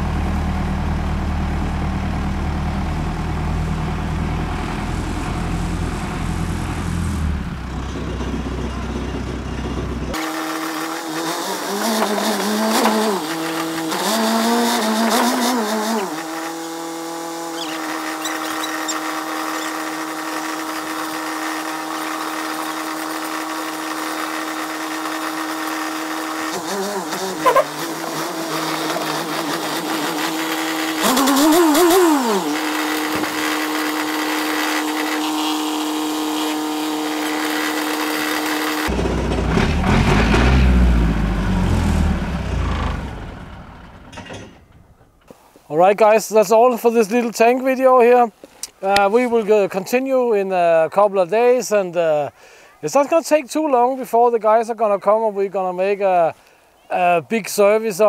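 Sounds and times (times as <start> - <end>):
tracked vehicle engine revving: 0.0 - 45.2.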